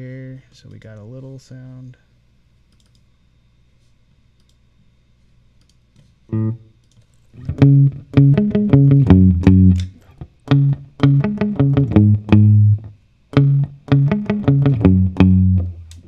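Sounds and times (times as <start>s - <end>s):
faint amp hum: 0.0s - 16.0s
electric guitar chord stabs: 6.3s - 6.6s, 7.4s - 16.0s.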